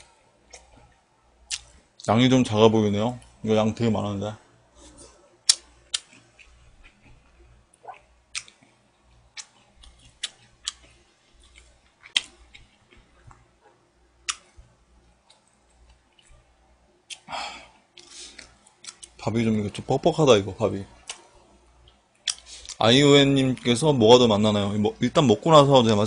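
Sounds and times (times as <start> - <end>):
person chewing rice: 0.0 - 1.7, 4.9 - 16.5
sharp clicks and smacks: 5.5 - 6.5.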